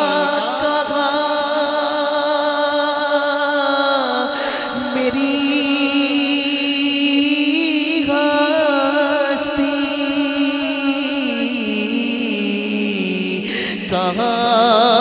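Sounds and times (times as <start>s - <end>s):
man chanting held notes: 0.0s - 0.8s
steady held drone tone: 0.0s - 1.4s.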